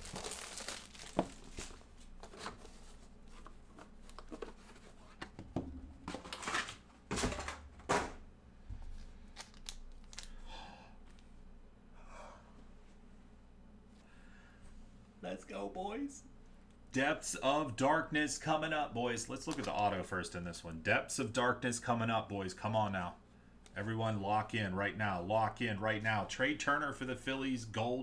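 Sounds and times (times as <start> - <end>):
plastic wrap tearing and crinkling: 0.0 - 1.9, 9.3 - 10.4
packaging rustling: 0.0 - 5.2, 8.9 - 10.4.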